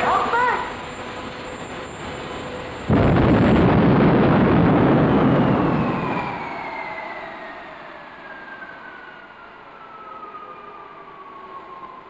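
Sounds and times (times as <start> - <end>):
jet engine roar: 0.0 - 12.0
turbine whine falling in pitch: 0.0 - 12.0.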